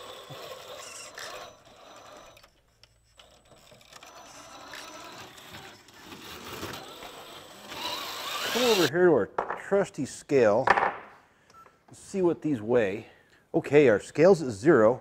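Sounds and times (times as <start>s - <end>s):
toy car motor whirring: 0.0s - 8.9s.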